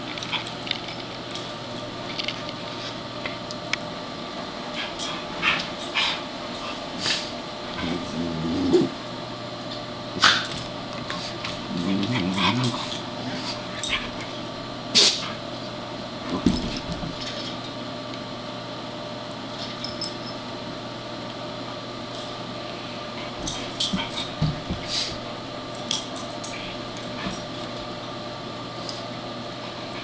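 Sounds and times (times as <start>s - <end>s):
pets play-growling: 0.0s - 3.0s, 4.6s - 9.1s, 10.1s - 15.5s, 22.8s - 28.0s.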